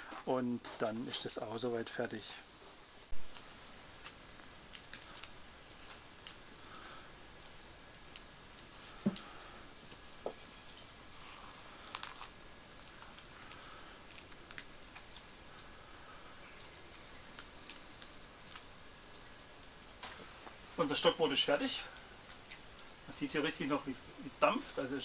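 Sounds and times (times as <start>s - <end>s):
wood fire crackling: 0.0s - 25.0s
bread being broken: 11.7s - 13.3s.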